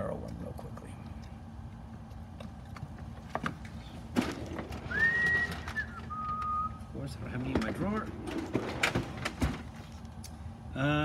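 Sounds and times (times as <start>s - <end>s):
whistle-like tones: 4.9s - 6.9s
rummaging through a drawer: 7.4s - 10.0s.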